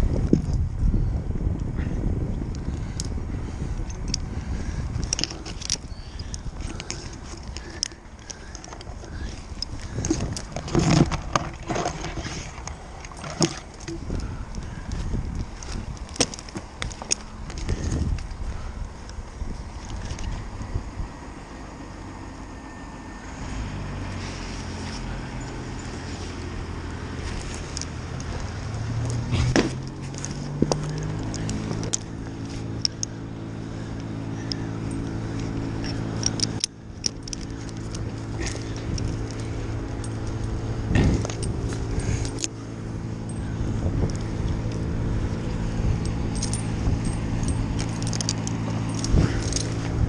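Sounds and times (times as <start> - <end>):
crane engine running: 0.0 - 50.0
metal climbing hardware jingling: 2.7 - 20.4, 24.8 - 50.0
steel chain clanking: 5.0 - 14.4, 25.0 - 50.0.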